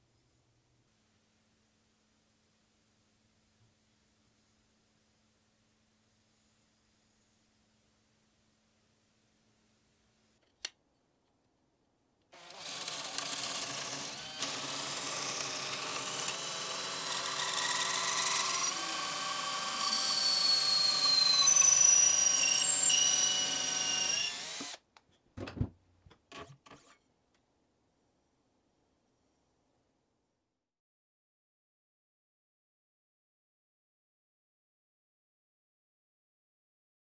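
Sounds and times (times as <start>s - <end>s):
power drill shaving wood: 12.4s - 24.8s.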